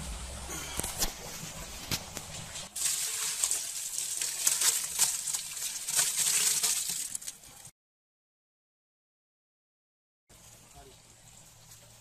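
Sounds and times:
grape mash pouring into metal pot: 2.8s - 7.7s.

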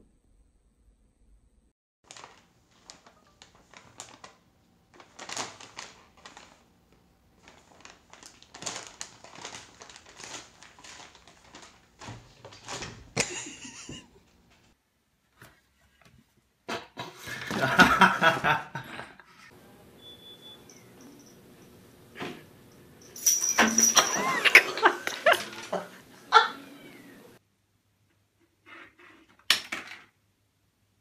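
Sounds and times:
pet food bag crinkling: 2.0s - 6.7s, 7.3s - 13.2s.

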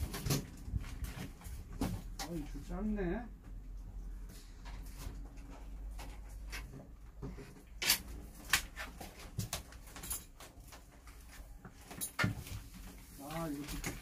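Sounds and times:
wires clicking and rustling: 4.2s - 14.0s.

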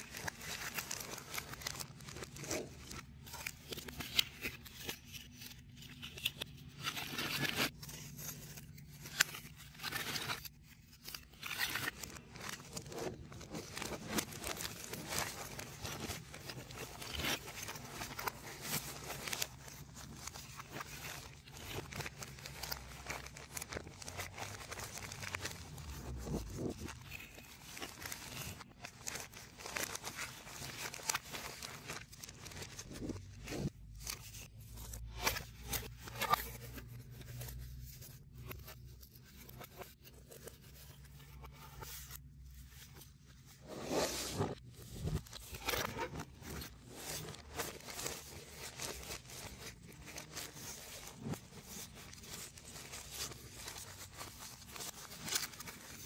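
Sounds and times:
plastic bag crinkling: 12.0s - 34.0s.

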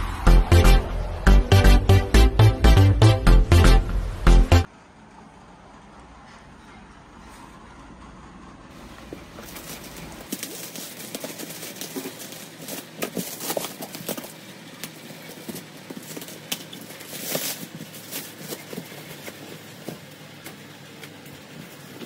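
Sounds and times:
plastic wrap crinkling and tearing: 9.4s - 14.4s, 15.2s - 19.1s.

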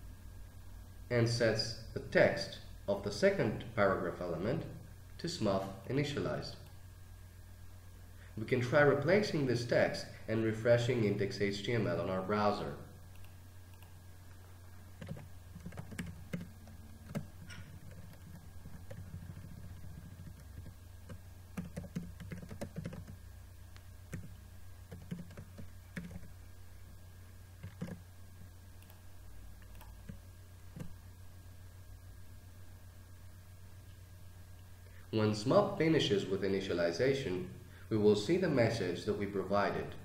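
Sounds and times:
low steady hum: 0.0s - 40.0s
typing on keyboard: 15.0s - 23.2s, 24.1s - 24.3s, 24.9s - 26.3s, 27.6s - 28.0s.

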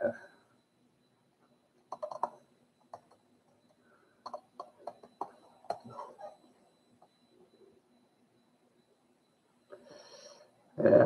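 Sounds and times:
light clicks and taps at desk: 1.8s - 5.9s.

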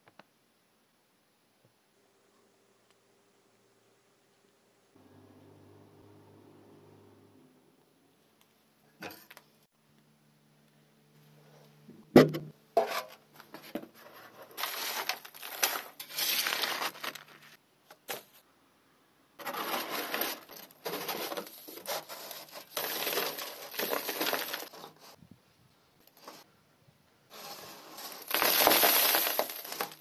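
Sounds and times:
soot scraping and rustling: 12.8s - 18.4s, 19.4s - 25.2s, 27.3s - 30.0s.

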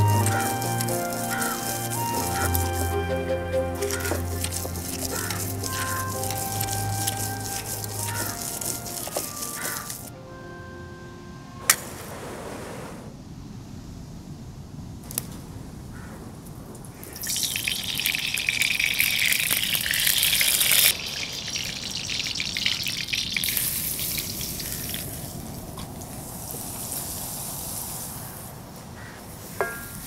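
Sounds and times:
hot oil sizzling in a wok: 0.0s - 10.1s, 17.0s - 28.5s.

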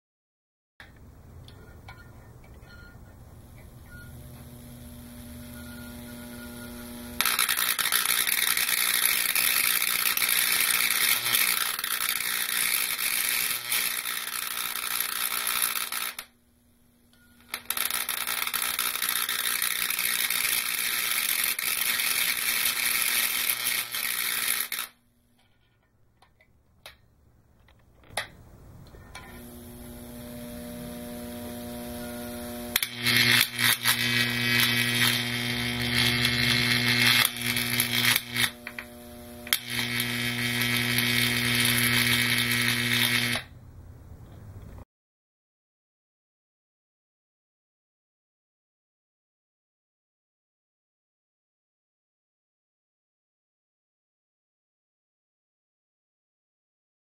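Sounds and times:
transformer humming: 1.4s - 16.2s, 28.8s - 43.4s
electric arc crackling buzz: 3.7s - 25.4s, 29.1s - 43.5s.

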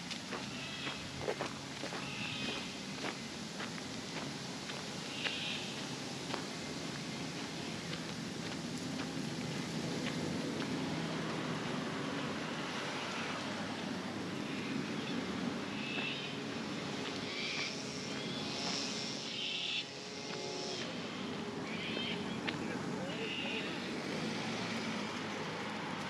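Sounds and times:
road traffic rumble: 0.0s - 26.0s
bird calls: 0.4s - 1.0s, 1.9s - 2.8s, 5.0s - 5.8s, 14.4s - 16.5s, 20.6s - 23.9s.

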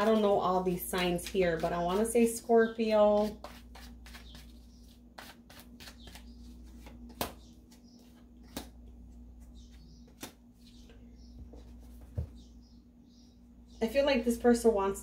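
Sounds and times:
cards being shuffled: 3.2s - 8.8s, 10.1s - 10.8s.

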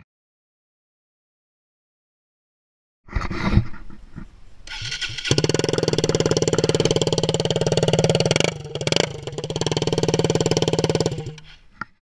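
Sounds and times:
motorcycle engine idling: 4.7s - 11.5s.

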